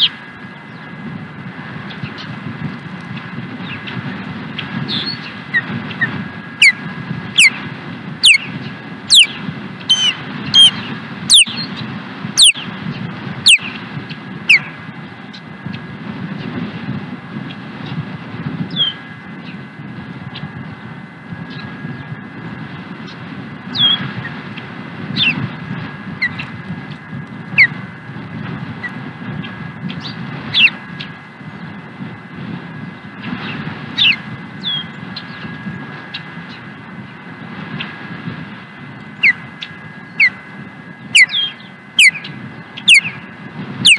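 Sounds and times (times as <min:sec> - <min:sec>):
low background rumble: 0:00.0 - 0:43.9
osprey whistling calls: 0:04.9 - 0:07.6, 0:08.2 - 0:12.8, 0:13.4 - 0:13.8, 0:14.4 - 0:14.8, 0:18.7 - 0:19.0, 0:23.7 - 0:24.0, 0:25.1 - 0:25.5, 0:26.2 - 0:26.5, 0:29.9 - 0:31.1, 0:34.0 - 0:35.5, 0:39.2 - 0:40.4, 0:41.0 - 0:43.9.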